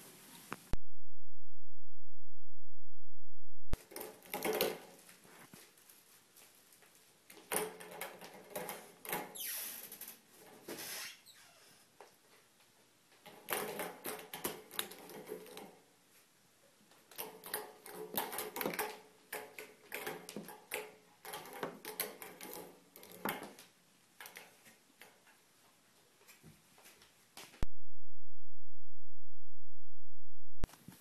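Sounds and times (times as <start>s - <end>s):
loud low hum: 0.8s - 3.8s.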